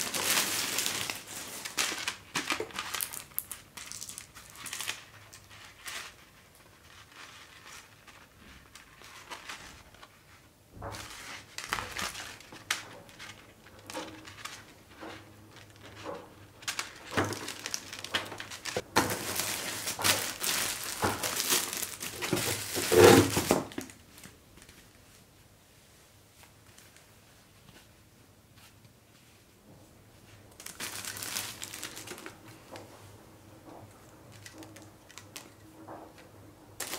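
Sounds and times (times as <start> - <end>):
packaging crinkling and crumpling: 0.0 - 10.2, 10.8 - 25.2, 30.5 - 32.9, 33.7 - 36.2
packaging rustling: 0.0 - 10.2, 10.8 - 24.9, 30.5 - 32.9, 33.9 - 35.7.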